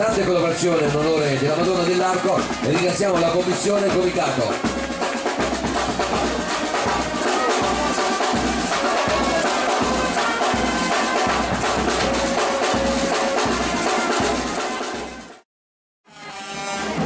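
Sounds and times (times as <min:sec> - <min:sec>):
bass drum beat: 0:00.0 - 0:15.3
cymbals and snare drum: 0:00.0 - 0:15.4, 0:16.2 - 0:17.0
brass sustained notes: 0:04.6 - 0:15.4, 0:16.1 - 0:17.0.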